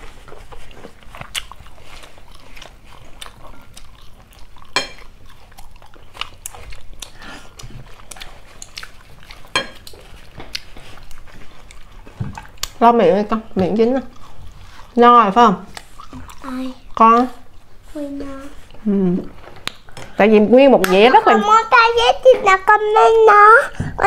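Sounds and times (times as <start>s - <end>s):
chewing meat: 0.0s - 18.9s
wet mouth clicks and smacks: 19.6s - 19.9s.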